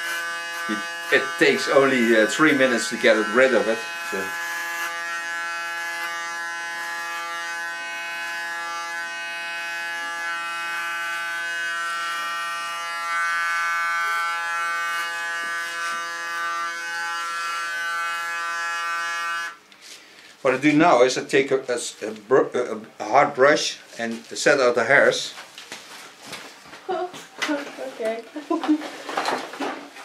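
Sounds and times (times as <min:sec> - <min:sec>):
electric hair clipper humming: 0:00.0 - 0:19.6.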